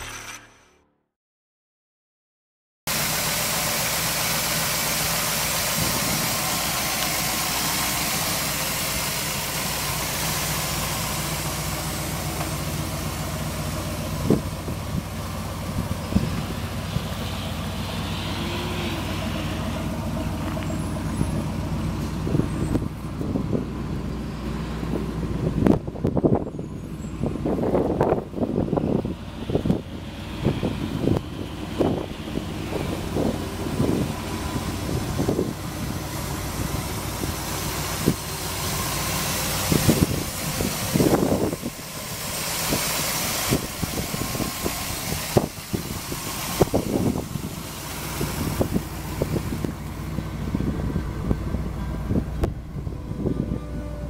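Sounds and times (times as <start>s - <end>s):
engine idling: 2.9s - 54.0s
wind gusts on microphone: 24.7s - 38.3s, 39.6s - 41.8s, 42.6s - 54.0s.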